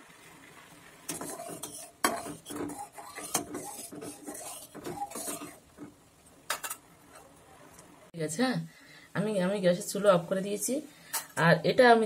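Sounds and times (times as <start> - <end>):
metal spoon scraping pan: 1.1 - 5.9, 6.5 - 7.3.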